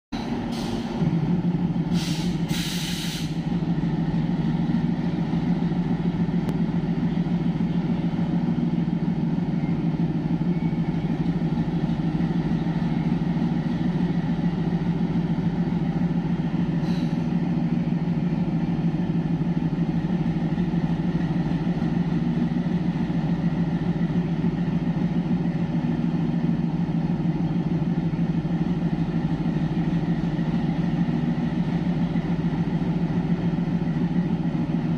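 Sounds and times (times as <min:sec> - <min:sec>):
diesel locomotive idling: 0:00.2 - 0:34.9
air hisses: 0:01.9 - 0:03.4.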